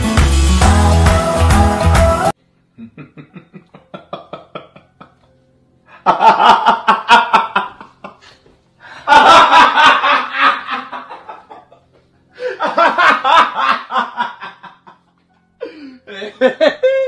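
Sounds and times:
person laughing: 0:02.8 - 0:05.3, 0:09.1 - 0:17.0.

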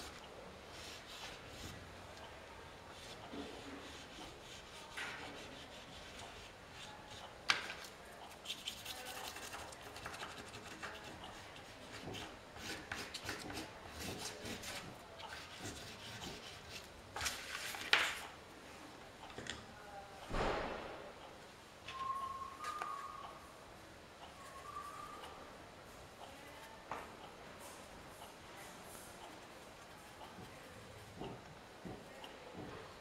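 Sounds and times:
pastel scribbling on paper: 0:02.9 - 0:07.3, 0:08.3 - 0:16.8
sharp knocks: 0:20.3 - 0:21.2.

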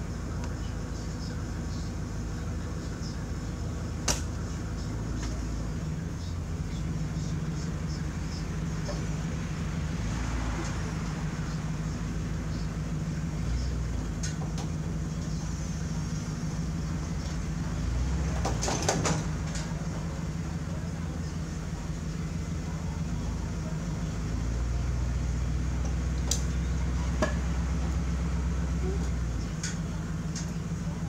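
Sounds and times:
truck engine idling: 0:00.0 - 0:31.0
sharp knocks and clunks: 0:18.3 - 0:19.7.

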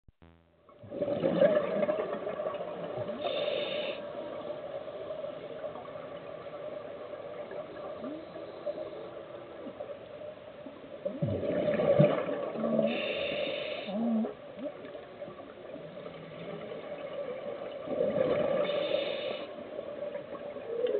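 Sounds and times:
steady hum: 0:00.1 - 0:10.6
underwater air bubbling: 0:00.2 - 0:09.9, 0:10.9 - 0:20.9.

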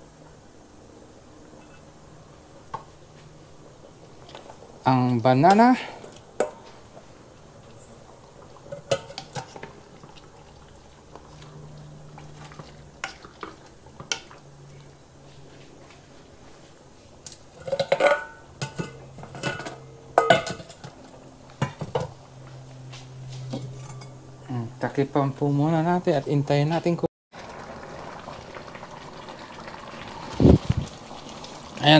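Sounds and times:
metal utensil clinking on pot: 0:08.7 - 0:09.7, 0:17.6 - 0:21.0, 0:23.5 - 0:24.2.

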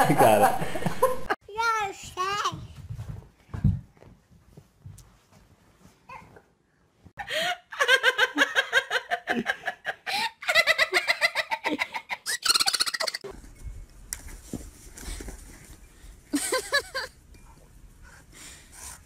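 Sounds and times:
person laughing hard: 0:16.4 - 0:17.1.

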